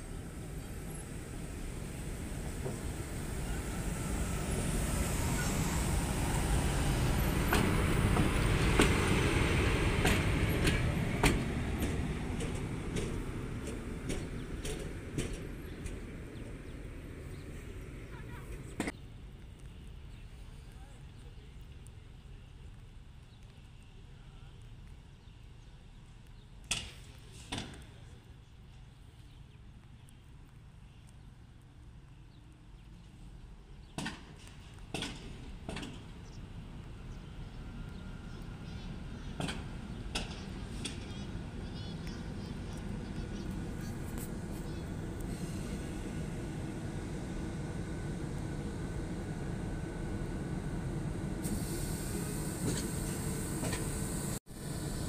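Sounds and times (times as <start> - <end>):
electric locomotive rumbling: 0.0 - 22.8, 32.6 - 55.0
wheels clacking over track joints: 6.4 - 16.9, 34.0 - 36.4, 39.2 - 45.4
wheels clacking: 6.5 - 18.9.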